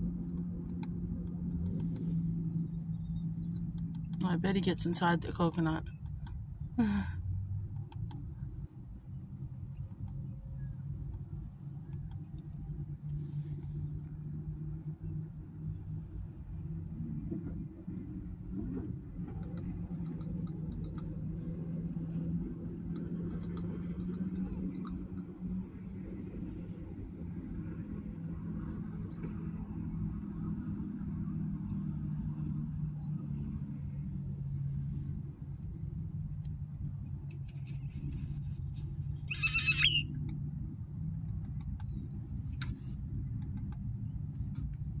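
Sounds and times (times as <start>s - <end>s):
vehicle engine idling: 0.0s - 16.6s
harsh bird call: 39.3s - 40.0s.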